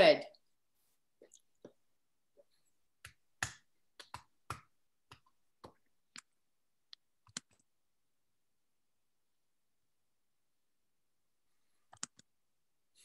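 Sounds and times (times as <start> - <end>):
computer mouse clicking: 6.9 - 7.7, 11.9 - 12.3.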